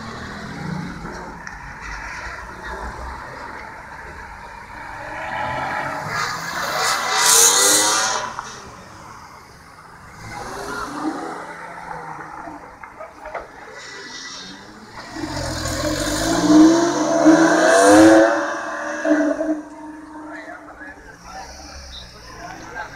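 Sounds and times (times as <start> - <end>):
car accelerating past: 14.9 - 22.8.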